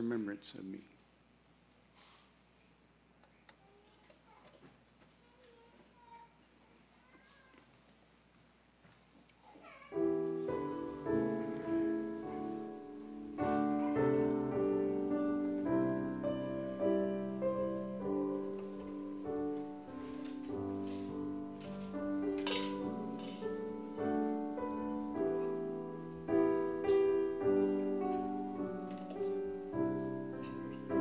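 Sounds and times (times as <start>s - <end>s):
piano playing slow chords: 9.9s - 31.0s.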